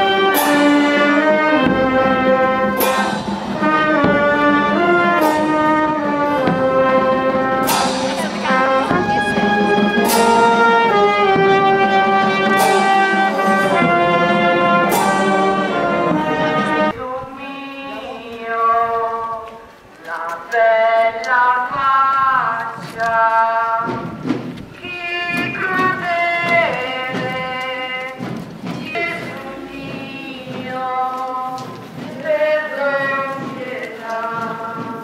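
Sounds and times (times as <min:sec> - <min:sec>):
brass band playing slow march: 0:00.0 - 0:17.0, 0:23.7 - 0:35.0
cymbal crash: 0:01.6 - 0:06.6, 0:07.6 - 0:11.6.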